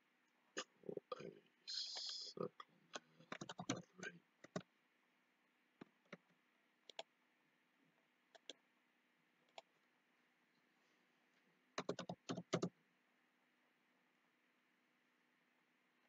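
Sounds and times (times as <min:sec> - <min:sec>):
keyboard keys tapping: 0:03.0 - 0:04.7, 0:11.8 - 0:12.7.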